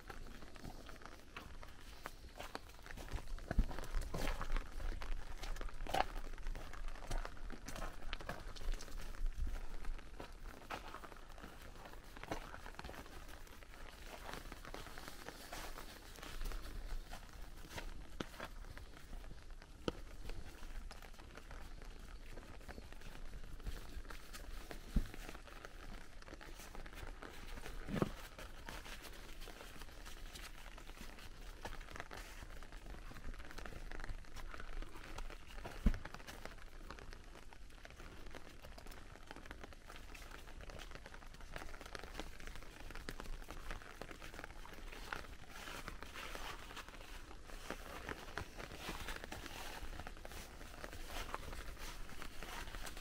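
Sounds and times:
footsteps crunching through leaves: 44.0 - 53.0.

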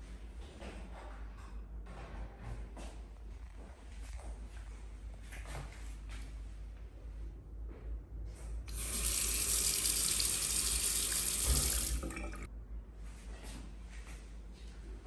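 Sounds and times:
tap water running into basin: 8.7 - 12.5.

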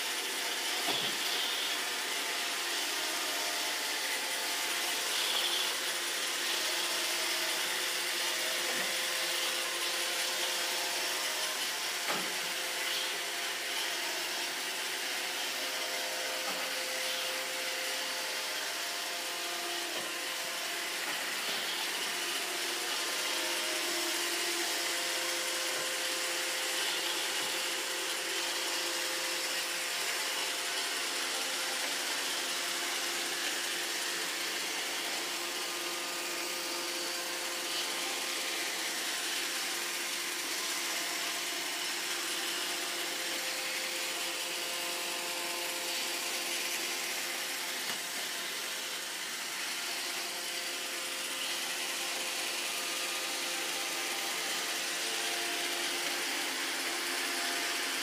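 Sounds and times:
robot vacuum whirring: 0.0 - 58.0.

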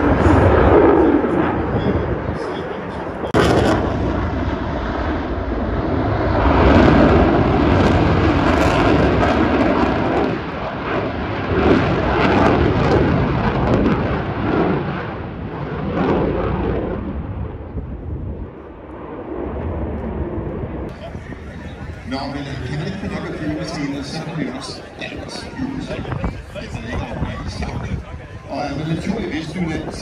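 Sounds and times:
fighter jet flying overhead: 0.0 - 30.0.

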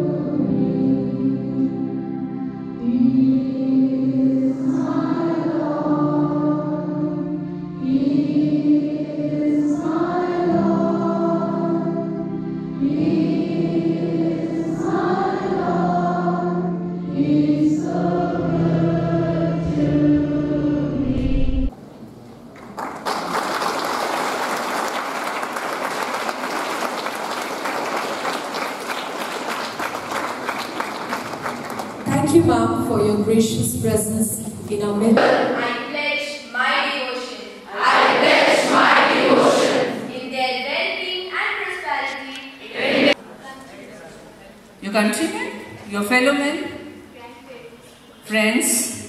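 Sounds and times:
low accompaniment: 0.0 - 22.5
children singing together: 2.8 - 12.2, 12.8 - 21.1, 37.7 - 40.1, 42.6 - 43.2
audience applauding: 22.5 - 32.1.

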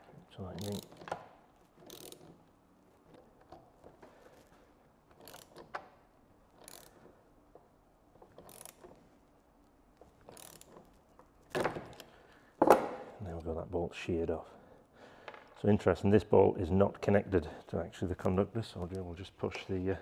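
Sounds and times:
socket ratchet clicking: 0.5 - 2.4, 5.1 - 5.9, 6.5 - 7.1, 8.2 - 9.0, 10.0 - 11.0.

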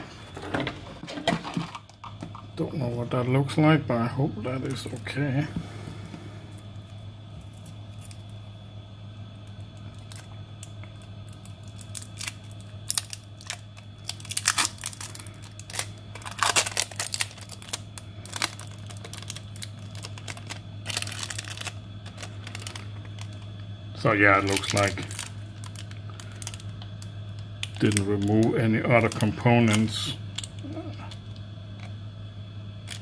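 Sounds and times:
steady low hum: 0.0 - 33.0
tape peeled and crumpled crackling: 6.6 - 8.6, 9.4 - 32.0.

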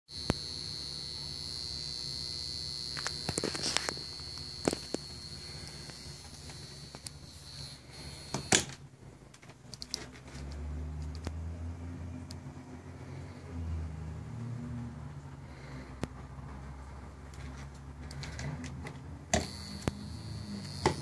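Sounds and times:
high-pitched whine: 0.1 - 8.7, 19.3 - 21.0
mains hum: 0.1 - 10.0, 12.2 - 21.0.

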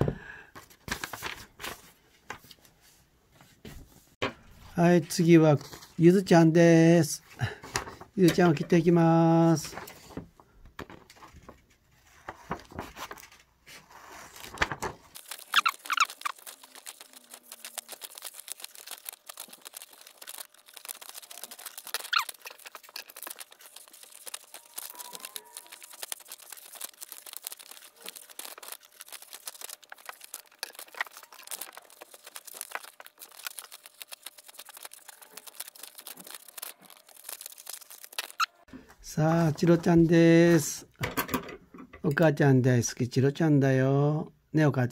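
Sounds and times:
paper rustling: 0.6 - 4.0, 5.5 - 6.0, 7.6 - 40.6
scissors cutting paper: 14.3 - 38.5.

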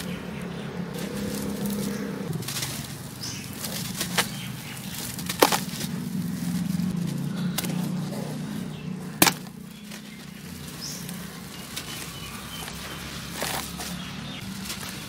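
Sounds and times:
sharp cracks: 0.9 - 8.1, 9.1 - 10.3
block crumbling with gritty crunching: 3.6 - 6.1, 9.2 - 10.1.

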